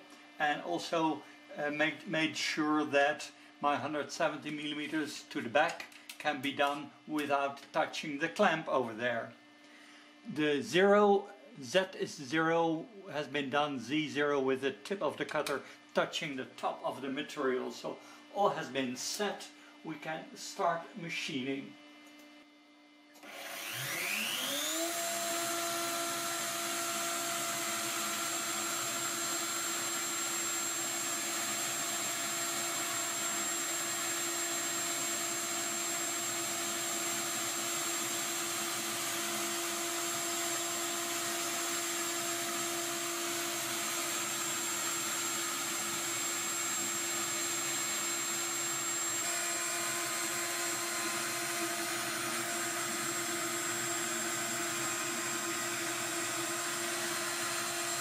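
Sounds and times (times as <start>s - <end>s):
milling spindle high whine: 23.4s - 58.0s.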